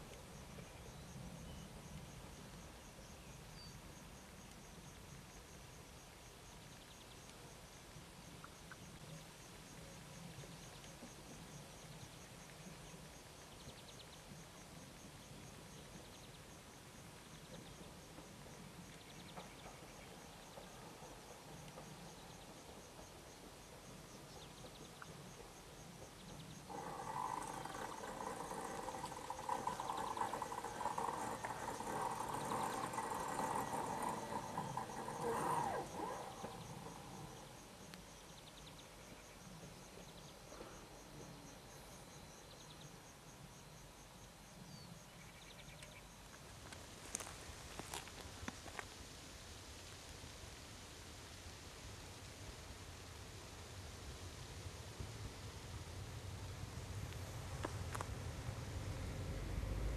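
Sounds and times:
insects chirping faintly: 0.0s - 59.9s
electric train whine: 25.3s - 38.1s, 55.5s - 59.9s.

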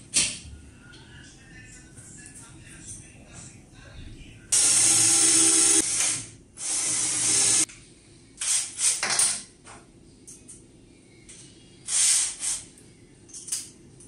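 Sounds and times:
cordless drill driving screws: 4.6s - 7.6s.

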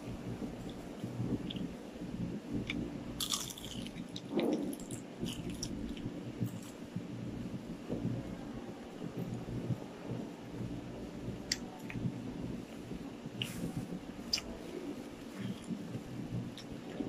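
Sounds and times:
crunchy chewing and biting: 2.6s - 6.8s.

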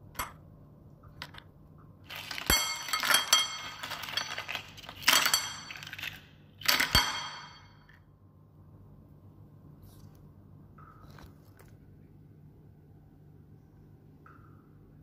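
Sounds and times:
shells clattering on a plate: 2.1s - 8.0s.

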